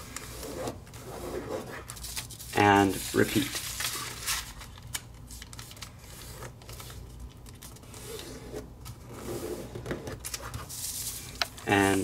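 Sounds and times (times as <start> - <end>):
paper scraping: 0.0 - 4.5, 7.8 - 12.0
paper rustling: 0.0 - 9.1
paper being folded and creased: 0.0 - 12.0.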